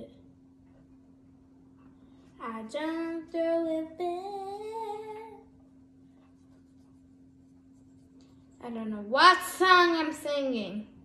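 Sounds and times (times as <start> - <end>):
faint steady hum: 0.0 - 11.0
girl singing: 2.4 - 5.5.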